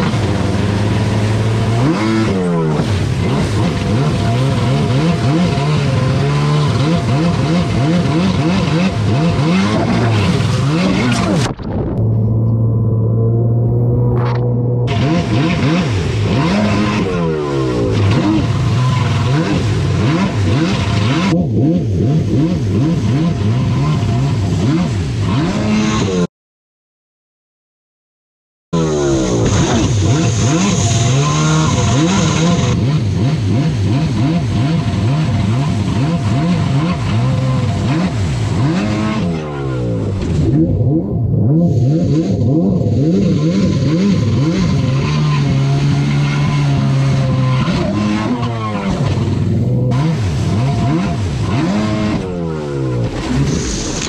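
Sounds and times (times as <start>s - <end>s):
water spray rushing: 0.0s - 11.6s, 28.8s - 40.6s, 41.8s - 54.0s
jet ski engine revving: 0.0s - 26.3s, 28.8s - 54.0s.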